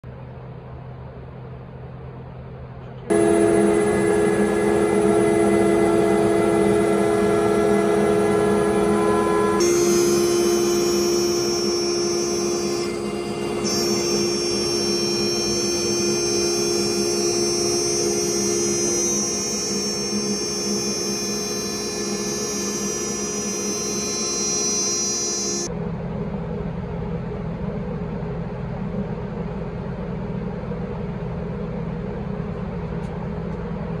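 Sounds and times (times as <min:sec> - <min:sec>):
low steady hum: 0:00.0 - 0:34.0
cnc router spindle whining: 0:03.1 - 0:25.7.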